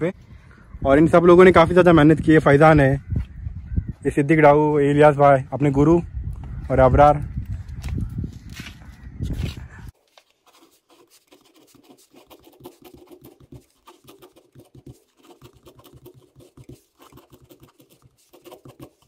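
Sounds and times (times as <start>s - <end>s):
pen scratching on paper: 10.4s - 19.0s.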